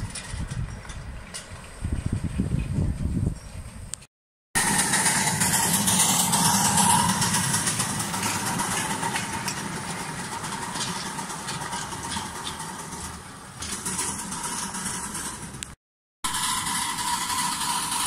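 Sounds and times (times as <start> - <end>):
wagons rolling on rails: 0.0 - 3.8, 4.6 - 18.0
steam locomotive hissing: 4.6 - 15.6, 16.3 - 18.0.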